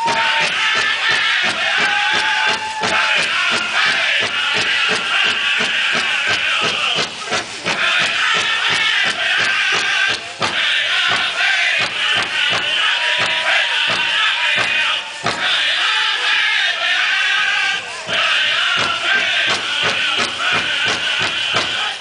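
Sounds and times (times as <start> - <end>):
big drum beating: 0.0 - 16.0, 17.7 - 22.0
group singing in high voices: 0.0 - 22.0.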